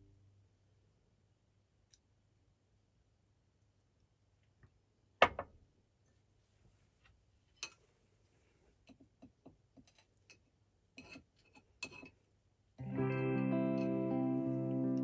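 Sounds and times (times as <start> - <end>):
click: 1.9 - 2.1.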